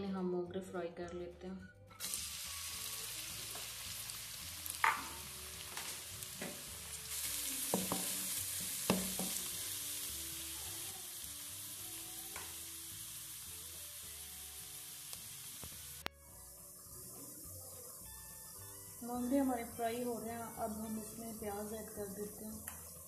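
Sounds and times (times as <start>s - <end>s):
food sizzling in hot oil: 2.0s - 23.0s
spatula scraping and knocking a pan: 7.7s - 9.4s.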